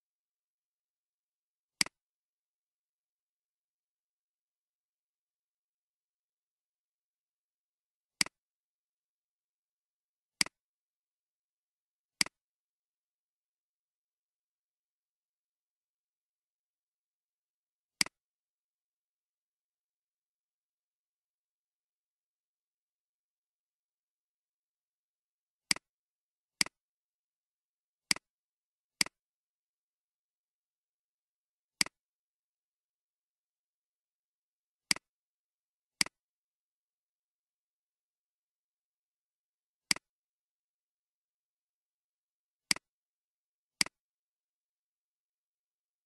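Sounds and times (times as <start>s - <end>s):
computer mouse clicks: 34.9s - 35.1s, 39.9s - 40.1s, 42.7s - 42.9s.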